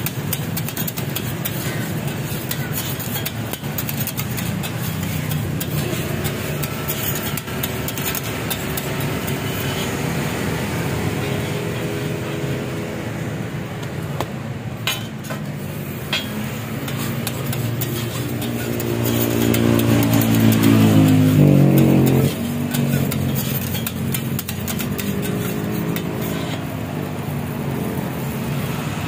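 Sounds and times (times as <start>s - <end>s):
metal spatula clacking on griddle: 0.0s - 10.0s, 14.8s - 27.1s
street traffic: 0.0s - 29.0s
motorcycle passing close: 3.9s - 13.6s, 16.4s - 29.0s.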